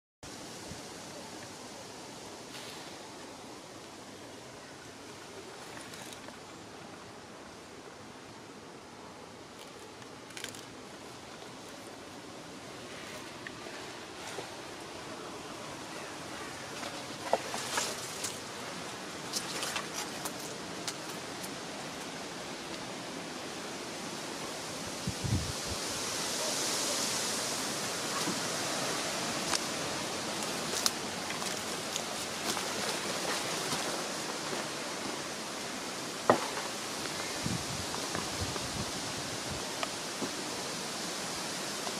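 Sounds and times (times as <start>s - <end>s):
leaves rustling in breeze: 0.2s - 41.9s
footsteps on leaves and gravel: 29.4s - 34.7s.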